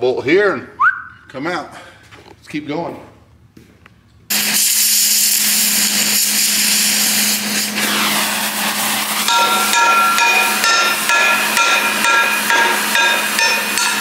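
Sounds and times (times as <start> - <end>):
cutting torch hissing: 4.3 - 14.0
hammer ringing on hot steel: 9.2 - 14.0.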